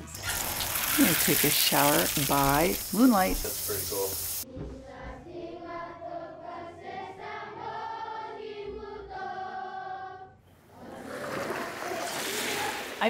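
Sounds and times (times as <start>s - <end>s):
voices singing in harmony: 4.4s - 12.8s.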